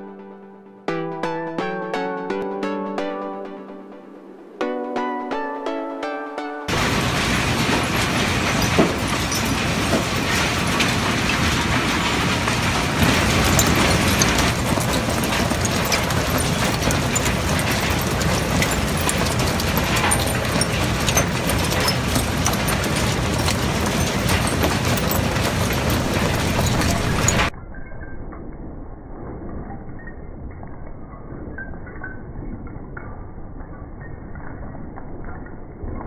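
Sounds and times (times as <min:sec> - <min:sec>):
conveyor clicks and rattles: 0:06.7 - 0:27.5
waste-sorting machinery din: 0:06.7 - 0:27.5.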